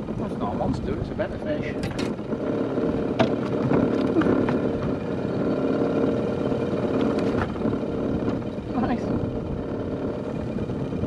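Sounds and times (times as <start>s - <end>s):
small boat motor running: 0.0s - 11.0s.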